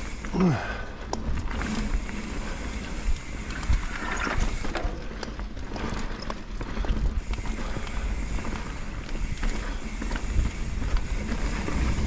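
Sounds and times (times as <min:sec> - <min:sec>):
bike frame and chain rattling: 0:00.0 - 0:12.0.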